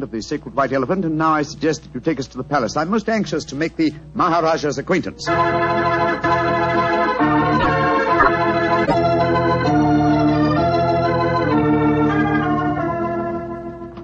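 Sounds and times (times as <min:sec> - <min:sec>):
organ playing held chords: 0:05.2 - 0:14.0.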